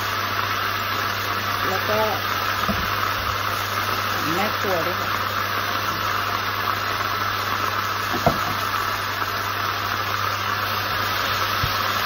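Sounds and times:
stir-frying sizzle: 0.0s - 12.0s
knock: 2.7s - 2.9s, 8.1s - 8.6s.

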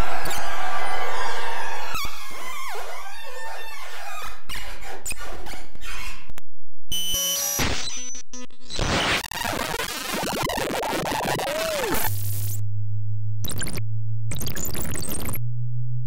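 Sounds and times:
electronic noise music: 9.2s - 12.6s.

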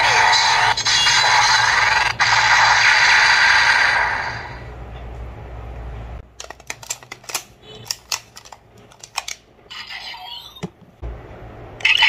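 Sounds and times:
plastic toy clicking and clacking: 6.4s - 9.4s
low steady hum: 10.6s - 12.0s.

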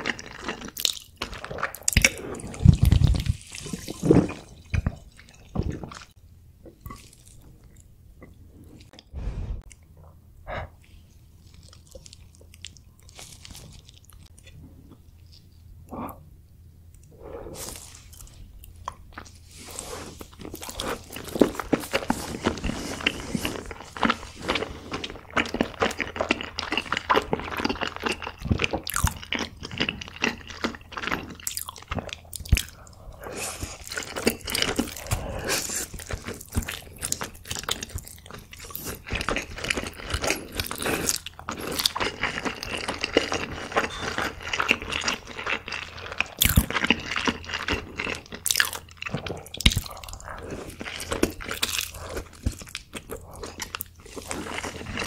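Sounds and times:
wet chewing with mouth clicks: 17.8s - 55.0s.

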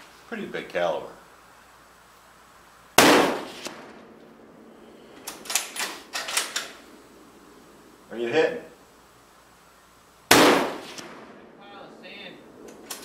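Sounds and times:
rifle shot: 3.0s - 4.2s, 10.3s - 11.5s
sharp clicks and clatter: 12.7s - 13.0s.

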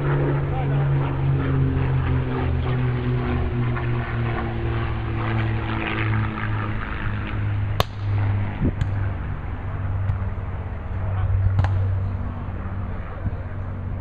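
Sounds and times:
low engine drone: 0.0s - 14.0s
volleyball being hit: 7.8s - 8.1s, 11.6s - 11.9s.

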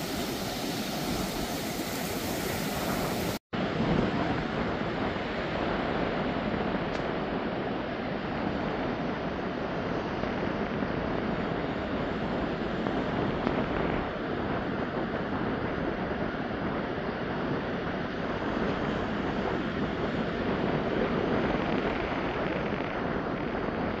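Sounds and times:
ocean waves breaking on beach: 0.0s - 24.0s.

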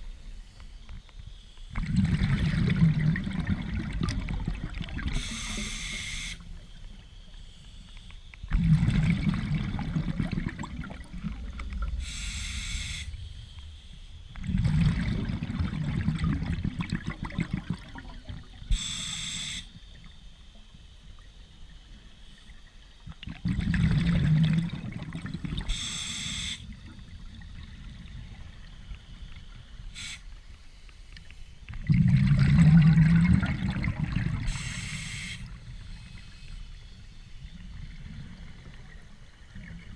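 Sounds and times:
bubbling exhale underwater: 1.8s - 5.8s, 8.5s - 12.4s, 14.4s - 18.9s, 23.1s - 28.9s, 31.7s - 36.0s
hissing regulator inhale: 5.1s - 8.3s, 12.0s - 14.2s, 18.7s - 19.8s, 25.6s - 26.8s, 29.4s - 31.6s, 34.4s - 37.4s.

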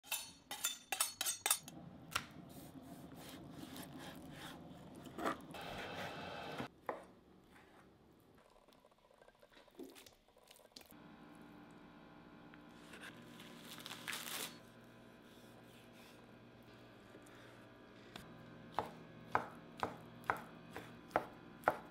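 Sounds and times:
knife honing metal strokes: 0.0s - 1.7s.

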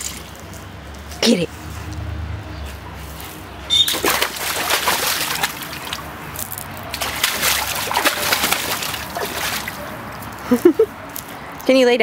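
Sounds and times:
dog splashing in water: 3.8s - 6.2s, 6.8s - 10.0s.

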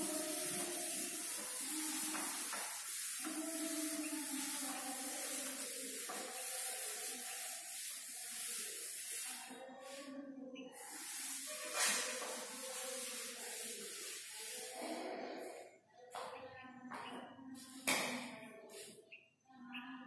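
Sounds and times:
cloth wiping a chalkboard: 0.0s - 10.1s, 10.7s - 15.0s, 18.7s - 19.0s.

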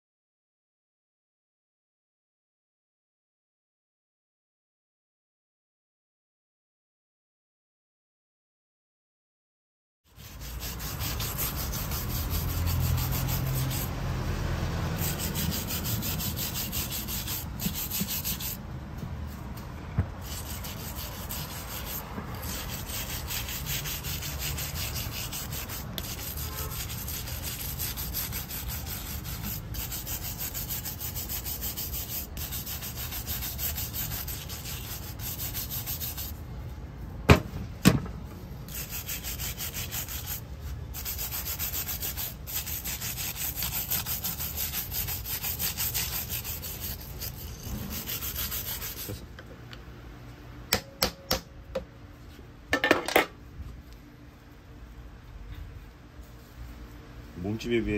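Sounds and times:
stick scraping dried mud: 10.2s - 13.9s, 41.0s - 49.1s.

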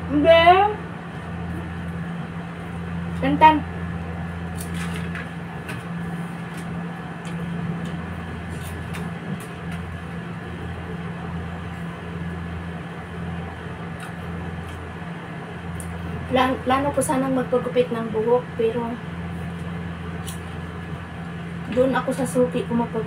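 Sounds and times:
low mechanical hum: 0.0s - 23.0s
snack sticks being chewed: 13.9s - 14.9s.

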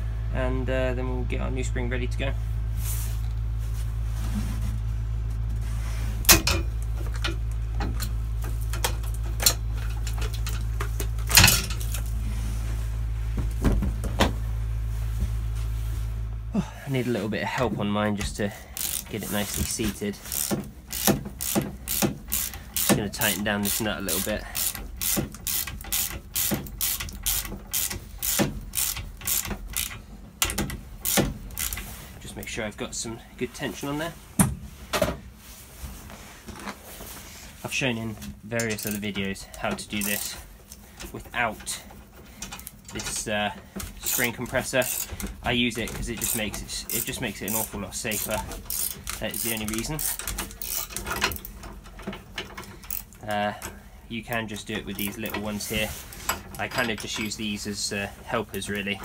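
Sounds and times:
steady low hum: 0.0s - 59.0s
metal clanks and knocks: 6.2s - 12.1s
ratchet wrench clicking: 18.7s - 31.9s, 38.6s - 40.4s, 44.0s - 45.4s, 46.0s - 51.6s, 52.4s - 53.2s.

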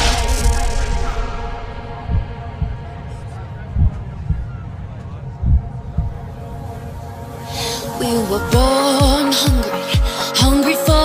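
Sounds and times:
instrumental background music: 6.5s - 11.0s.

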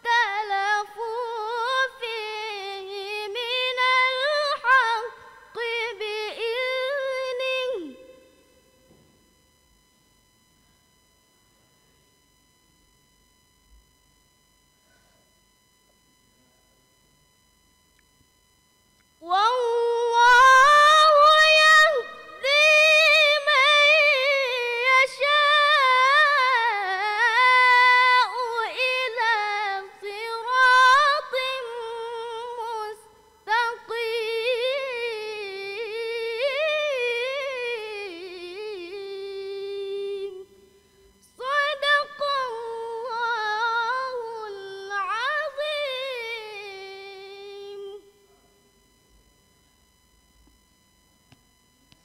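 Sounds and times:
girl reciting melodically: 0.0s - 8.0s.

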